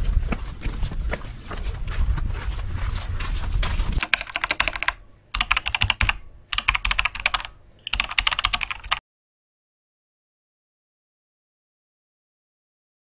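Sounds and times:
keyboard typing: 4.0 - 9.0.

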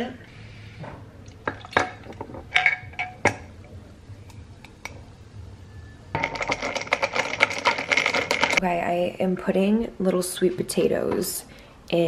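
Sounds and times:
ice cubes clinking in glass: 6.2 - 8.6.

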